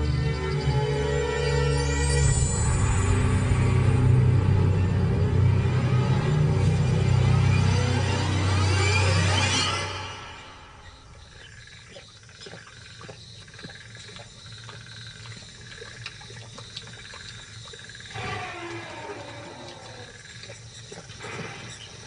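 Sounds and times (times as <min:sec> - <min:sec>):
insects chirping: 0:00.0 - 0:22.0
lions lapping water: 0:11.2 - 0:22.0.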